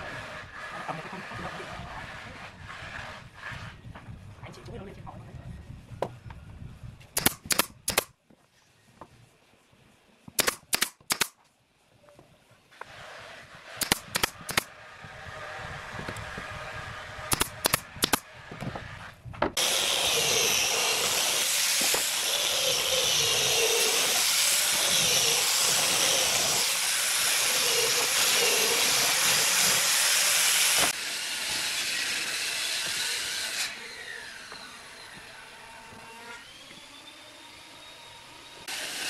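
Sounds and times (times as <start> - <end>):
angle grinder sanding wood: 0.0 - 3.8, 18.7 - 36.7
nail gun clicks: 7.2 - 8.1, 10.4 - 11.4, 13.8 - 14.7, 17.3 - 18.2.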